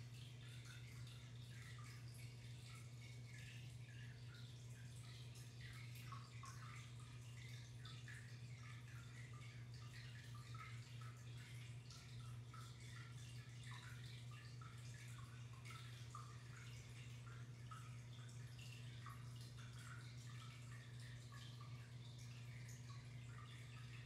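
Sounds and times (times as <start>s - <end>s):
steady low hum: 0.0s - 24.0s
water trickling and dripping: 0.0s - 24.0s.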